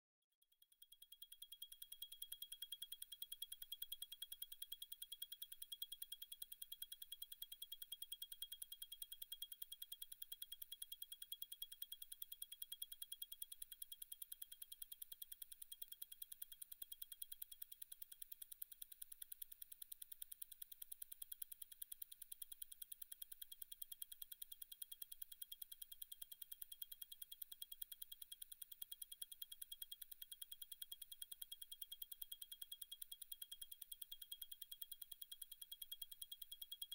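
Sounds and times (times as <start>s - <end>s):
watch movement ticking: 13.2s - 36.9s.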